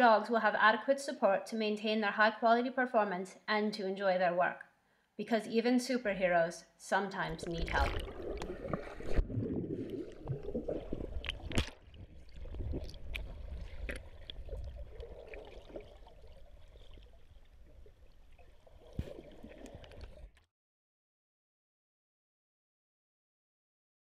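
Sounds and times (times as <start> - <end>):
muffled underwater churning water: 7.3 - 20.5
sharp knocks underwater: 7.4 - 16.0, 18.8 - 20.2.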